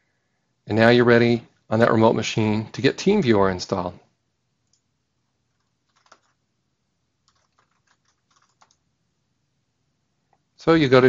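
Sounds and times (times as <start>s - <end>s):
faint keyboard typing: 4.6s - 6.5s, 7.2s - 8.9s.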